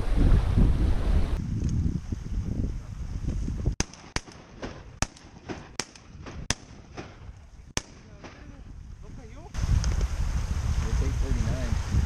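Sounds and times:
wind buffeting microphone: 0:00.0 - 0:12.0
sharp irregular pops: 0:03.8 - 0:08.5.

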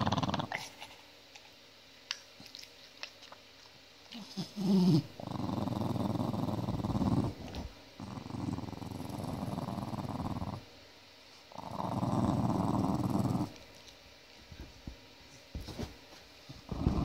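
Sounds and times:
dog growling: 0:00.0 - 0:00.8, 0:04.1 - 0:10.7, 0:11.5 - 0:13.6, 0:16.6 - 0:17.0.

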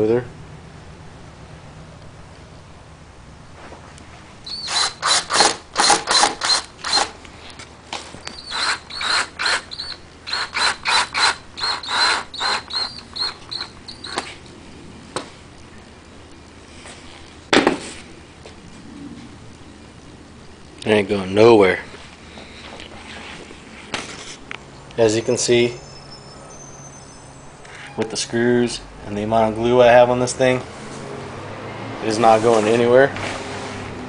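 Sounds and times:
power drill driving screws: 0:04.5 - 0:07.2, 0:08.3 - 0:14.3.

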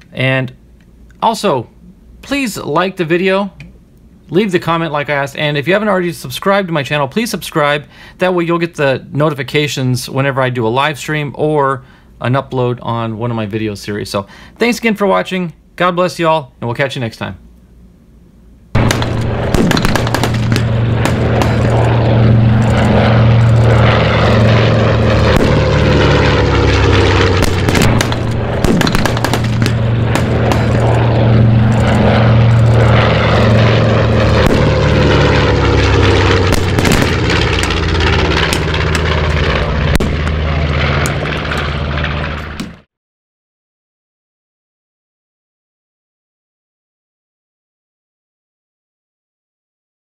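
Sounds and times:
propeller aircraft engines droning: 0:00.0 - 0:15.8, 0:16.6 - 0:42.9.

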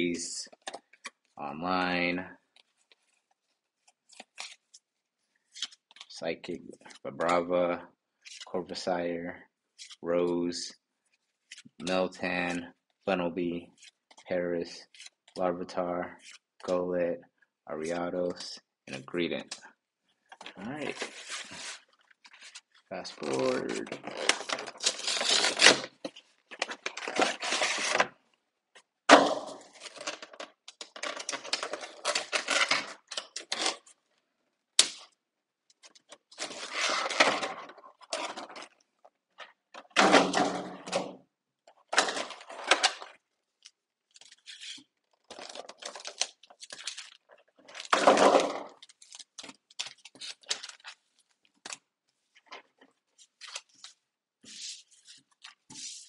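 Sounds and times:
cardboard and plastic packaging tearing: 0:20.9 - 0:28.1, 0:29.6 - 0:33.9, 0:36.3 - 0:38.8, 0:44.1 - 0:51.8.

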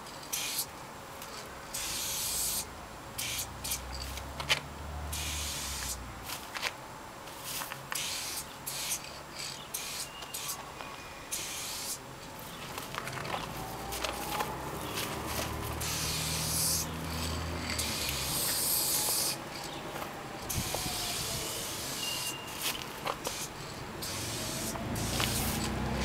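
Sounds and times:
spray can hissing: 0:00.3 - 0:00.7, 0:01.3 - 0:04.2, 0:05.1 - 0:06.0, 0:07.4 - 0:10.7, 0:11.3 - 0:12.0, 0:13.6 - 0:26.0.

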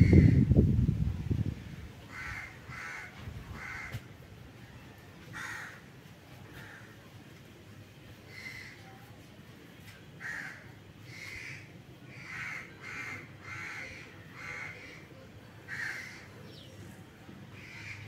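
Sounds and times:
crow cawing: 0:02.1 - 0:04.0, 0:05.3 - 0:05.9, 0:10.2 - 0:15.1, 0:15.7 - 0:16.3, 0:17.6 - 0:18.0.

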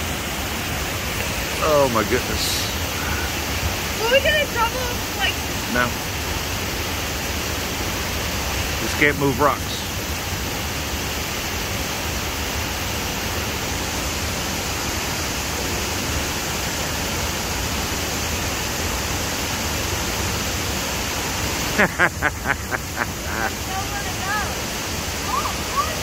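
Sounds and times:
waterfall rushing: 0:00.0 - 0:26.0
person calling out: 0:23.2 - 0:24.4.

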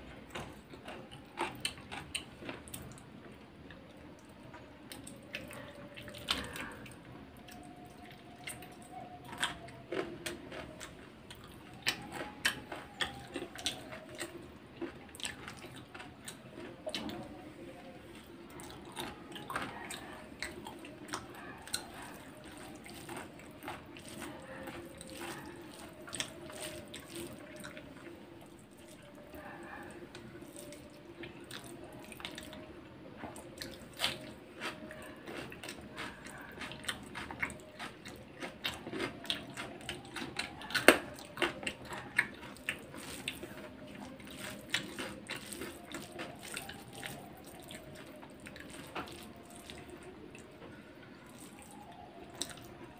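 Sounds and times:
person chewing with wet smacks: 0:00.0 - 0:52.9
fingers squishing rice: 0:18.2 - 0:32.5, 0:33.2 - 0:50.1.

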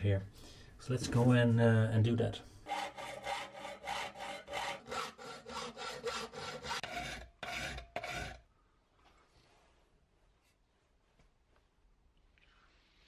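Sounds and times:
hand file rasping on metal: 0:02.7 - 0:08.4.

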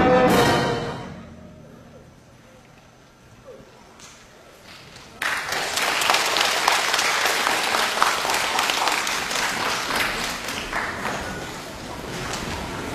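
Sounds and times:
audience applause: 0:05.0 - 0:12.9.

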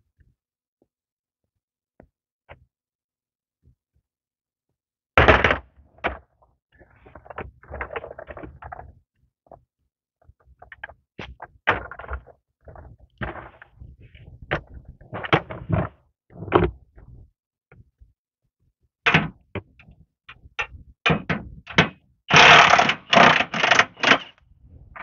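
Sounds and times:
knocks clatters and scraping: 0:10.6 - 0:17.2, 0:20.4 - 0:25.0
plastic creeper clacking on concrete: 0:19.1 - 0:24.4.

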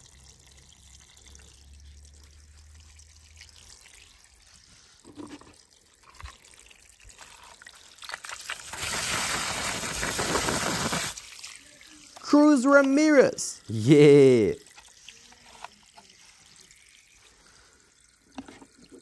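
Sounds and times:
water trickling: 0:00.0 - 0:19.0
water spraying onto plastic: 0:07.1 - 0:13.2.

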